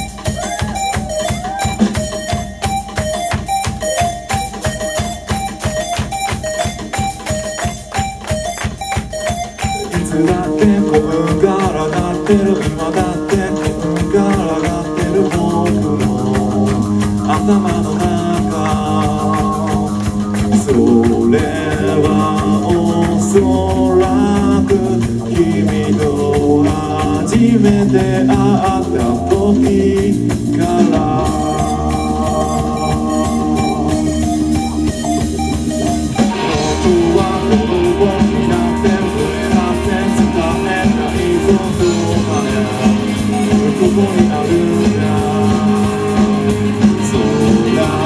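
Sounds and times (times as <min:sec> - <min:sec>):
rock band playing live: 0:00.0 - 0:48.0
person singing lead vocal: 0:09.7 - 0:35.5, 0:36.1 - 0:48.0.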